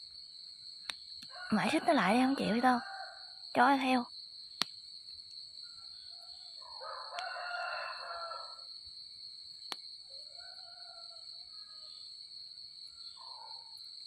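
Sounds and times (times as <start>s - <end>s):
night insects chorus: 0.0s - 14.0s
rooster crowing: 1.3s - 3.4s, 6.0s - 8.7s, 10.1s - 12.0s.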